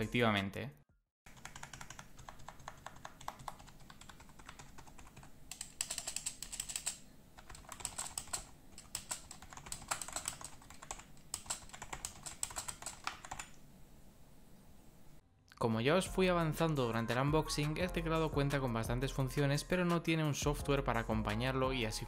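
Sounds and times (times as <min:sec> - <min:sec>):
fast keyboard typing: 0:01.3 - 0:13.6.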